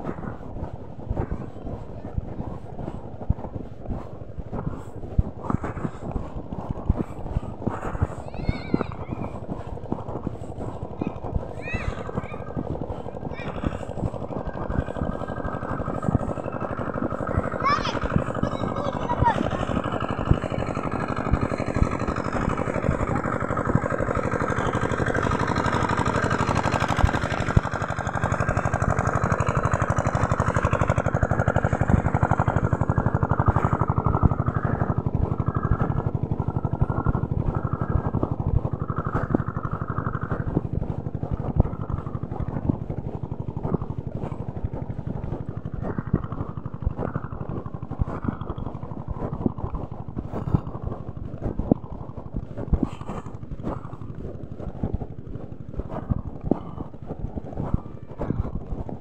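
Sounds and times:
small vehicle engine running: 0.0 - 59.0
wind on microphone: 0.0 - 59.0.

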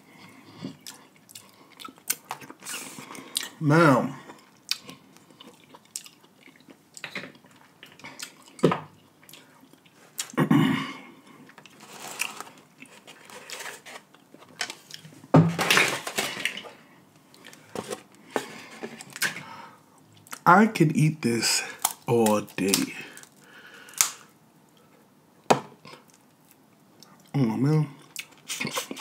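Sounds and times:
wet chewing: 0.8 - 3.6, 4.3 - 10.4.

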